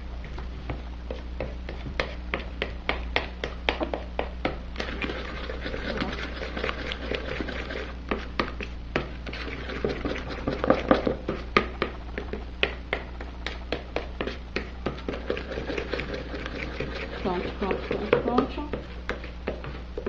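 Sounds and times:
metal spoon stirring batter in bowl: 0:04.8 - 0:20.0.

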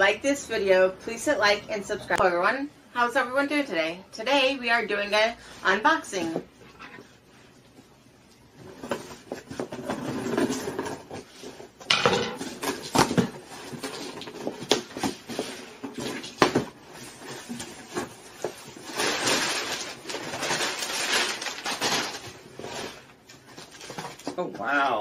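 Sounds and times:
packing paper rustling: 0:12.4 - 0:24.3.

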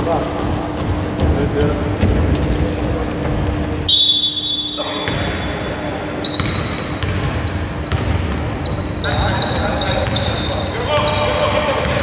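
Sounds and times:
high squealing tones: 0:03.9 - 0:11.2.

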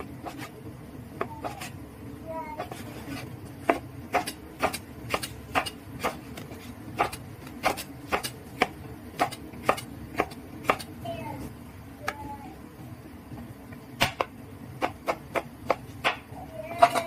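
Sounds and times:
knife chopping on wooden board: 0:02.6 - 0:10.9, 0:14.0 - 0:17.0.

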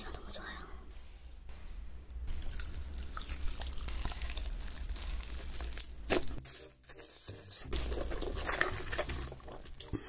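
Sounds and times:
wet sticky chewing: 0:02.4 - 0:06.5.

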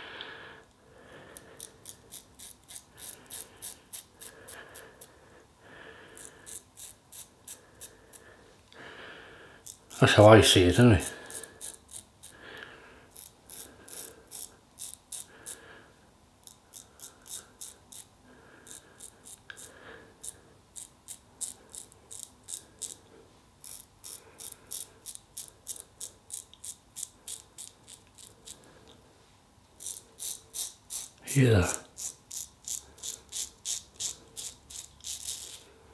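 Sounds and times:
razor scraping stubble: 0:01.3 - 0:05.0, 0:06.1 - 0:08.2, 0:09.6 - 0:12.4, 0:13.1 - 0:15.6, 0:16.4 - 0:23.0, 0:23.6 - 0:28.7, 0:29.8 - 0:35.7.

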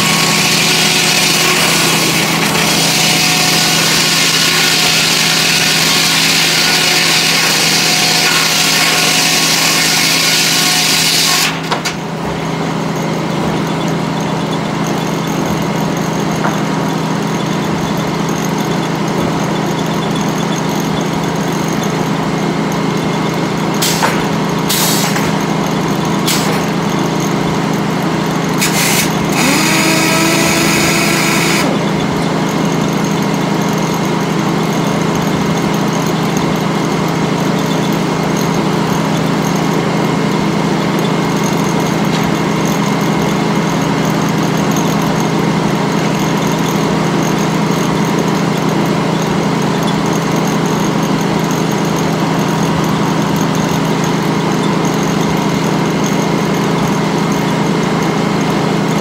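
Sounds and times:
sawmill machinery hum: 0:00.0 - 0:59.0.

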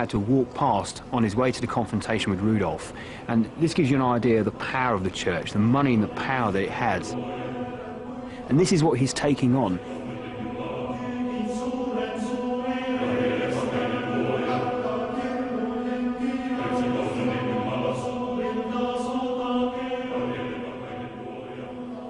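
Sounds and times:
chant-like singing: 0:00.0 - 0:22.0
low drone: 0:04.5 - 0:22.0.

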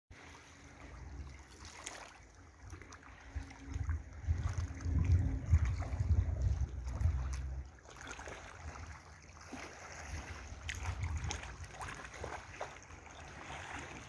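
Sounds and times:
small waves lapping: 0:00.1 - 0:14.0
wind buffeting microphone: 0:02.7 - 0:07.8, 0:09.9 - 0:12.6.

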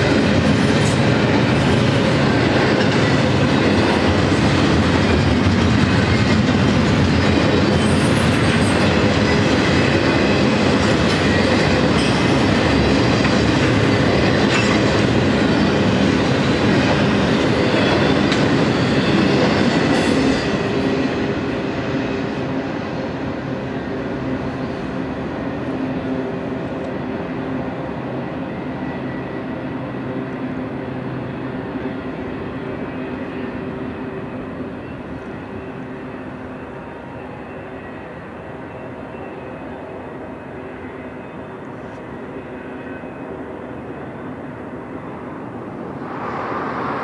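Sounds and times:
train wheels clattering on rail: 0:00.0 - 0:47.0.

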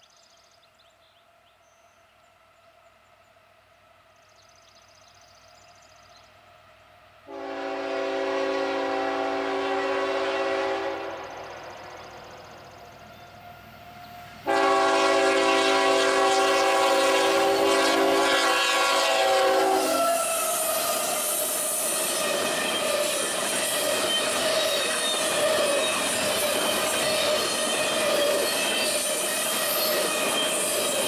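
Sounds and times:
freight train rolling on rails: 0:03.6 - 0:31.0
locomotive air horn chord: 0:07.3 - 0:11.4, 0:13.3 - 0:21.3
hiss: 0:17.2 - 0:31.0
wheels squealing: 0:19.9 - 0:31.0.

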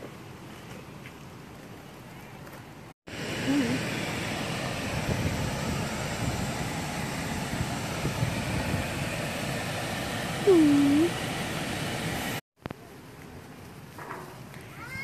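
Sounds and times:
short voiced hum: 0:03.3 - 0:03.9, 0:10.4 - 0:11.2.

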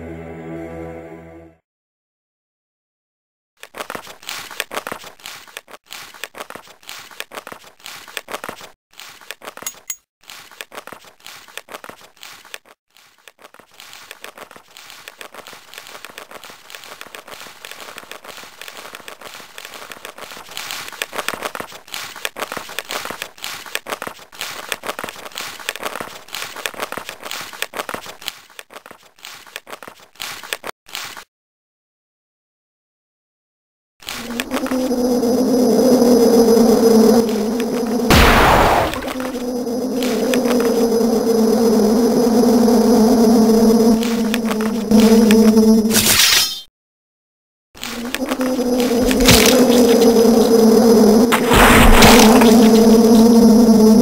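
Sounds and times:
crinkling crackling noise: 0:03.6 - 0:31.3, 0:34.0 - 0:35.0, 0:37.1 - 0:42.8, 0:43.4 - 0:45.6, 0:47.8 - 0:54.0.

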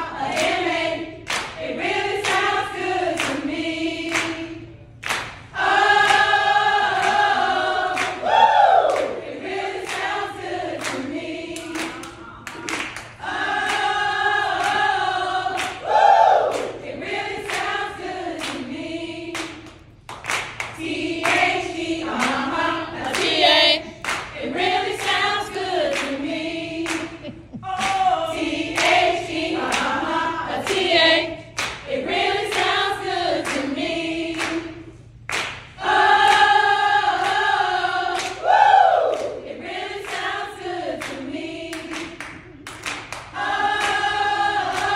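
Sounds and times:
rhythmic hand claps: 0:00.0 - 0:44.9
women chanting in unison: 0:20.8 - 0:27.0, 0:27.6 - 0:34.6.

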